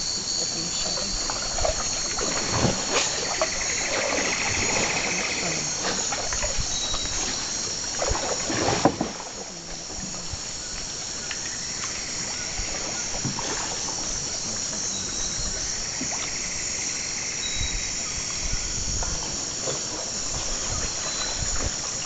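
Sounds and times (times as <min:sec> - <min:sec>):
rapid pulsed trill: 0:00.0 - 0:08.0
paddles splashing in water: 0:00.0 - 0:16.6, 0:17.7 - 0:22.0
insect chorus buzzing: 0:00.0 - 0:22.0.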